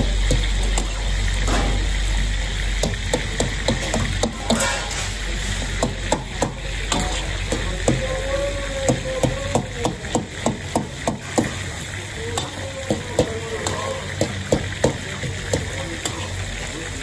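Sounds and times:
food sizzling and bubbling: 0:00.0 - 0:17.0
ladle clanking on wok: 0:02.8 - 0:08.2.

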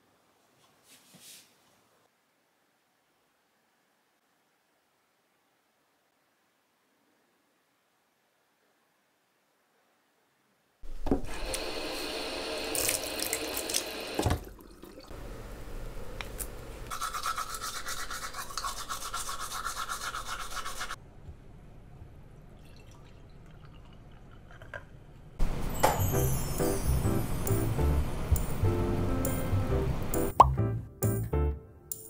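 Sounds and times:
running water splashing: 0:12.5 - 0:15.1.

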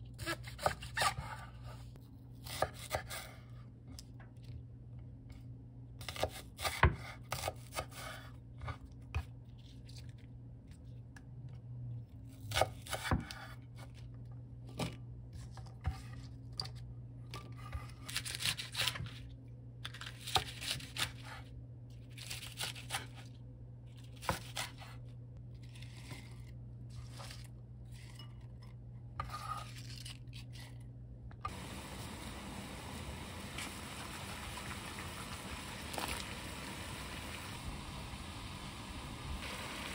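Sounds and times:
pot of water boiling: 0:31.5 - 0:39.9.

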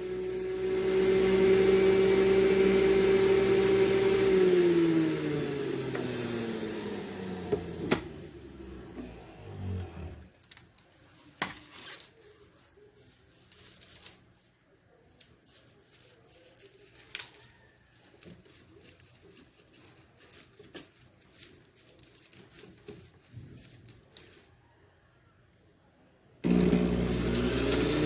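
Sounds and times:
celery rustling and crinkling: 0:10.2 - 0:24.8.

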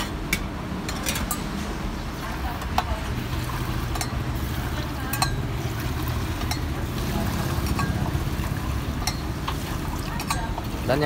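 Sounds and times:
metal mugs clinking: 0:04.9 - 0:05.6, 0:07.6 - 0:11.0.

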